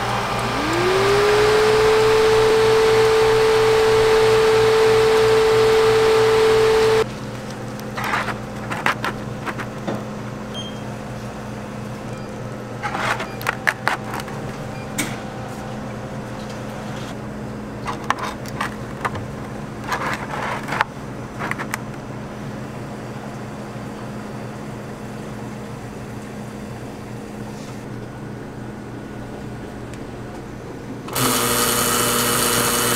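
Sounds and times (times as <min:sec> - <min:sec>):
low machine hum: 0:00.0 - 0:32.9
paper rustling: 0:07.3 - 0:09.7, 0:19.8 - 0:21.8.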